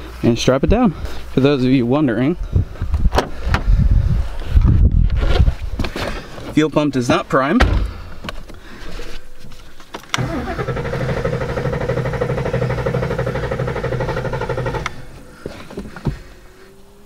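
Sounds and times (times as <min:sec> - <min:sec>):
starter clicks: 0:10.0 - 0:15.2
car starter cranking: 0:10.2 - 0:15.3.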